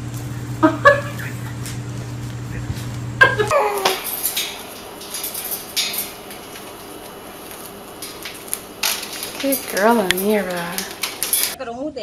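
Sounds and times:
metallic clinks from wire birdcage: 3.6s - 11.6s.

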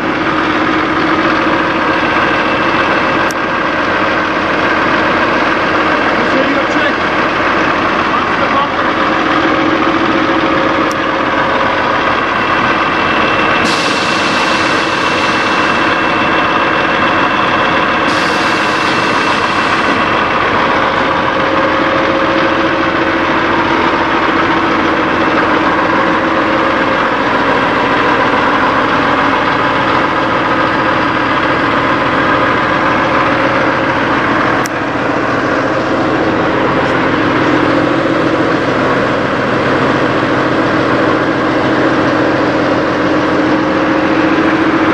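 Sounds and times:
diesel truck engine idling: 0.0s - 44.9s
air hissing bursts: 13.5s - 20.4s.

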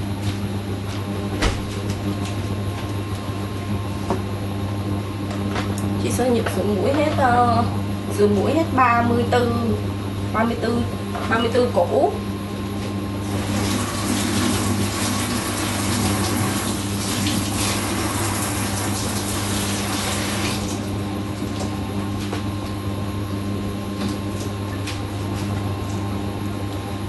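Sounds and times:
steady low hum: 0.0s - 27.0s
kitchen tap running into sink: 13.3s - 20.8s.

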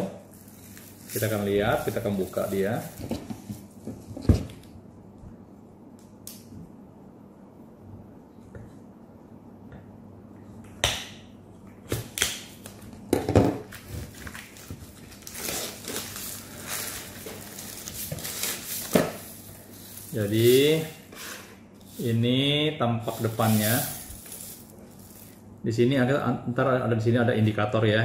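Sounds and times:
plastic crinkling: 0.2s - 3.8s, 13.7s - 21.0s, 23.0s - 25.4s.

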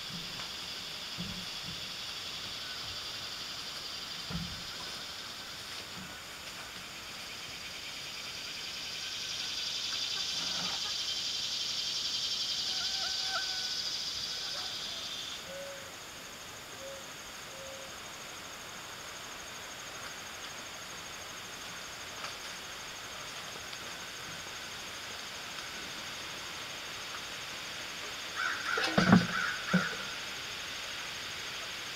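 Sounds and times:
insects droning: 0.0s - 31.9s
pulsing insect trill: 0.0s - 31.9s.

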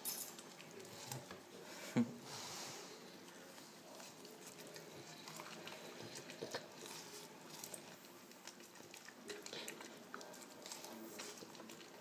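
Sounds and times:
dog licking and gnawing: 3.6s - 12.0s.

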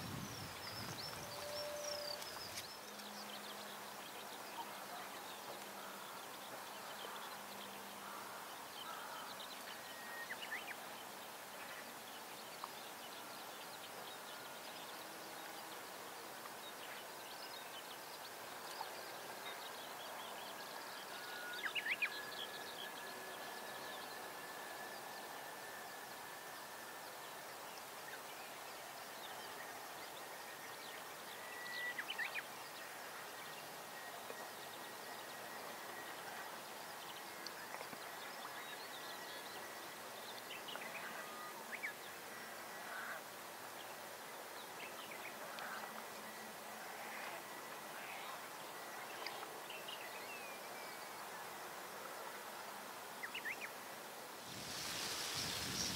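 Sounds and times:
thin high whine: 0.0s - 2.7s.

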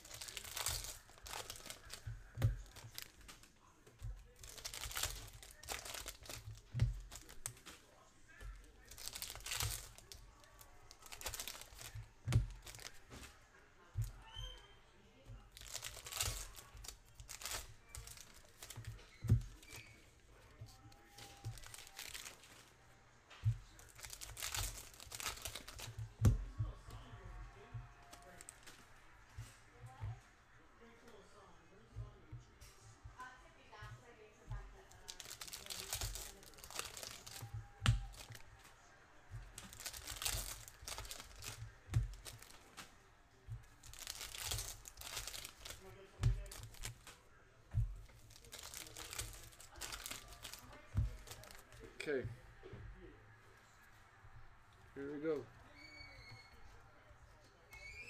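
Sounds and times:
foil wrappers crinkling and tearing: 0.0s - 13.4s, 15.4s - 22.8s, 23.4s - 27.1s, 28.0s - 28.8s, 34.8s - 38.7s, 39.4s - 43.0s, 43.6s - 47.2s, 47.8s - 52.0s.

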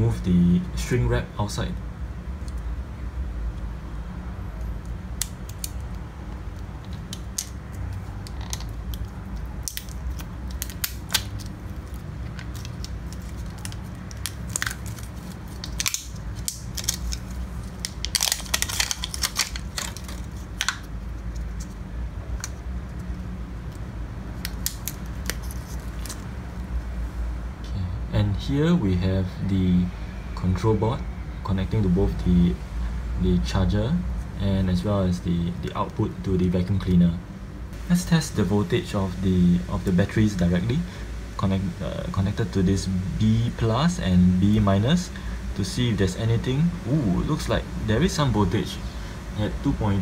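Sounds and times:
steady low hum: 0.0s - 50.0s
plastic shrink wrap crackling: 8.2s - 21.6s.

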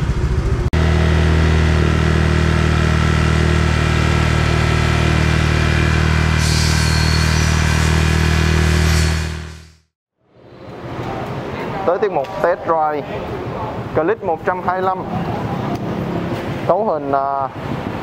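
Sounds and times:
scooter engine idling: 0.0s - 5.7s.

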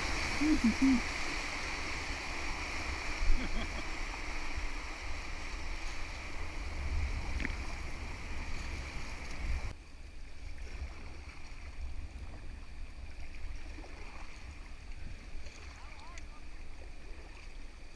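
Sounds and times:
rushing whitewater: 0.0s - 9.7s
gentle rippling current: 0.0s - 17.9s.

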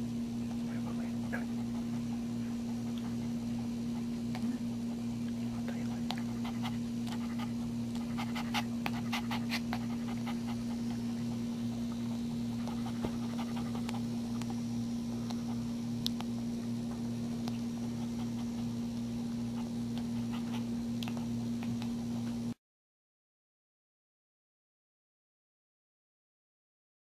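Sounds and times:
steady low hum: 0.0s - 22.6s
puppy nursing clicks: 8.8s - 14.6s, 15.2s - 22.4s.

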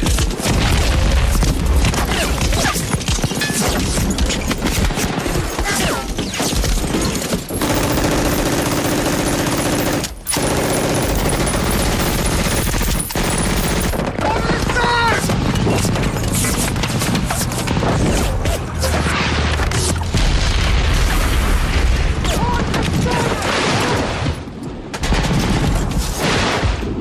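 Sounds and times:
rapid machine-gun fire: 0.0s - 18.2s.

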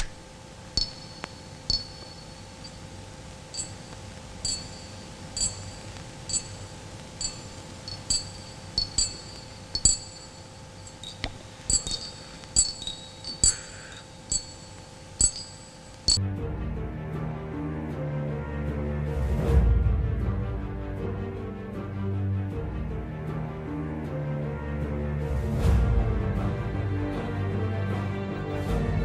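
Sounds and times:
faint steady hum: 0.0s - 16.2s
music: 0.0s - 29.0s
glassy clinks: 0.8s - 16.2s.

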